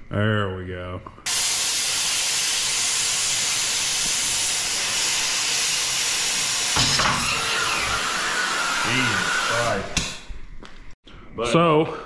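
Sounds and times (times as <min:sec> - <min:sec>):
cutting torch hissing: 0:01.3 - 0:10.4.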